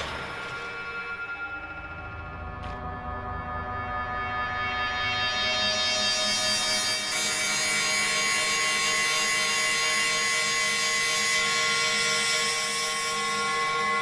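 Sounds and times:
held ambient drone tones: 0.0 - 8.3.

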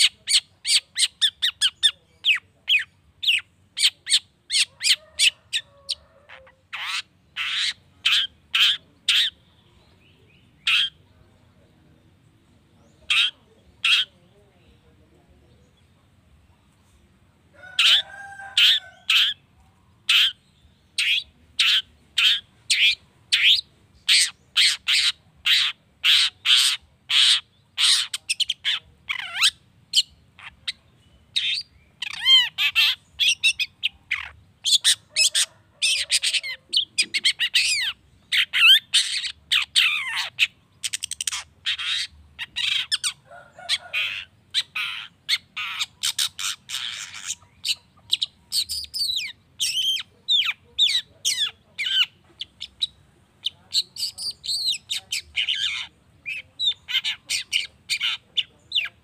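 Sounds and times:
shrike singing: 17.6 - 59.0.

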